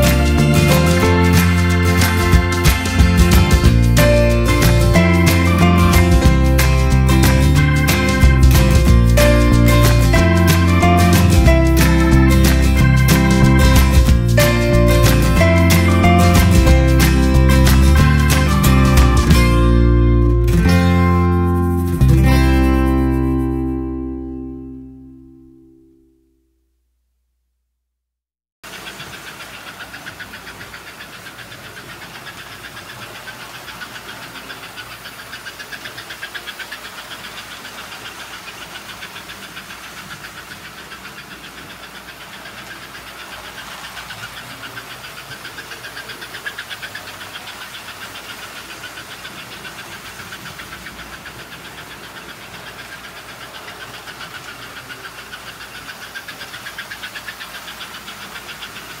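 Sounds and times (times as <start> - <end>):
toy trains rattling on metal track: 28.7 - 59.0.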